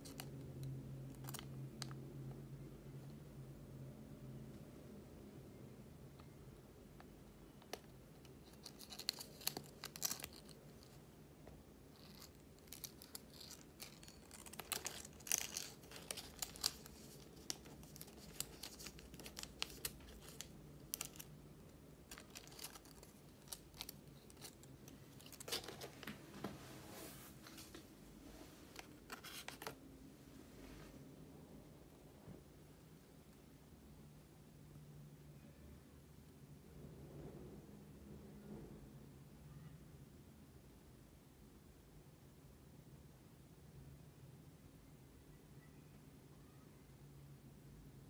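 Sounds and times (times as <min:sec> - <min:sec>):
paper crinkling and rustling: 0:01.1 - 0:02.0, 0:07.6 - 0:11.0, 0:11.9 - 0:21.4, 0:22.0 - 0:29.8.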